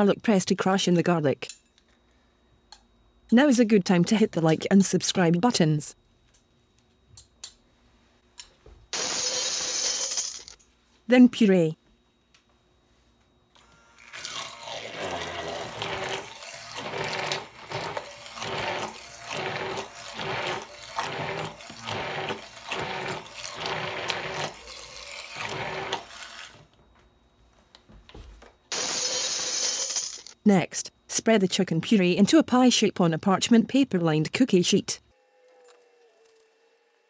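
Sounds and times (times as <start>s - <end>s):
immersion blender whirring: 13.6s - 26.7s.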